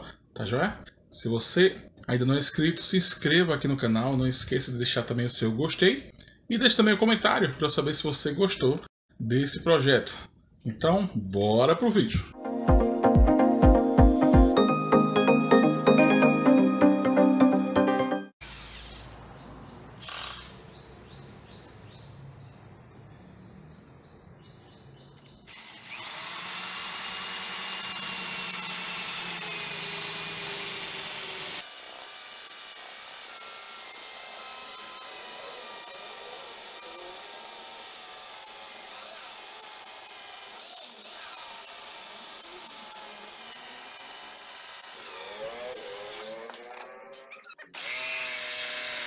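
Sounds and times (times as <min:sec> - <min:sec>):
cordless drill boring through wood: 0:18.4 - 0:19.1, 0:20.0 - 0:20.6, 0:25.5 - 0:49.0.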